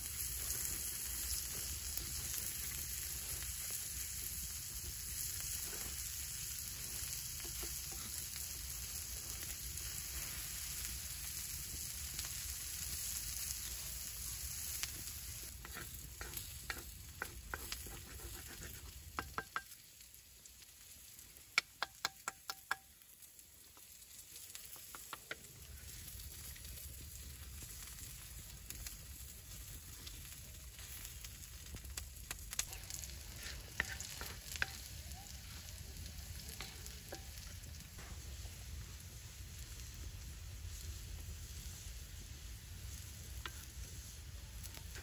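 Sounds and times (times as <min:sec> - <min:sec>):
potatoes sizzling on hot stone: 0:00.0 - 0:45.0
wooden spatula scraping stone: 0:15.0 - 0:19.6, 0:32.6 - 0:34.9
spatula tapping stone: 0:19.1 - 0:19.8, 0:21.6 - 0:22.9.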